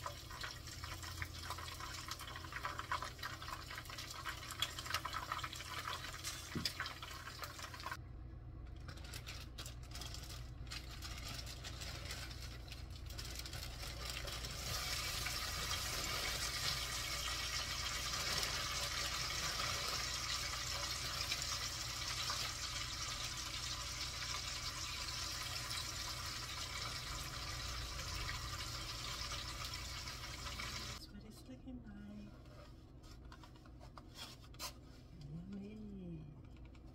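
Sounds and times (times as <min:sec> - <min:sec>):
oil sizzling in a skillet: 0:14.5 - 0:31.0.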